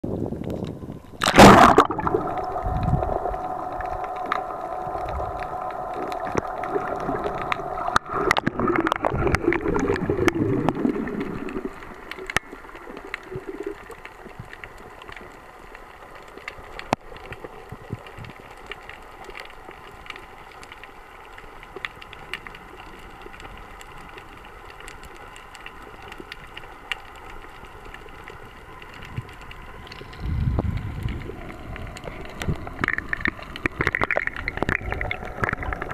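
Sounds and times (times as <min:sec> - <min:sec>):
underwater hum: 0:00.0 - 0:35.9
bubbling: 0:00.2 - 0:15.4, 0:27.5 - 0:35.9
low rumble: 0:00.9 - 0:12.4, 0:29.8 - 0:33.4.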